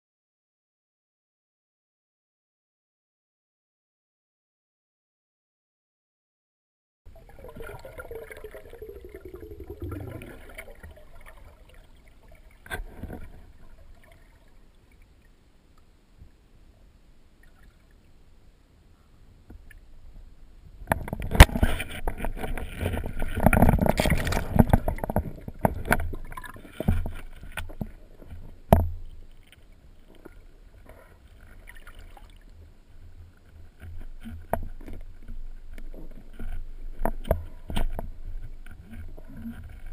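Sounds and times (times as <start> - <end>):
water rushing underwater: 7.1 - 15.2, 21.1 - 27.6.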